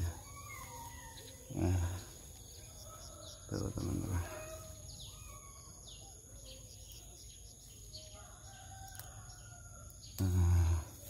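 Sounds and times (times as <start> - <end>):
distant rooster crowing: 0.0 - 6.2, 8.0 - 10.1
birds chirping: 0.0 - 11.0.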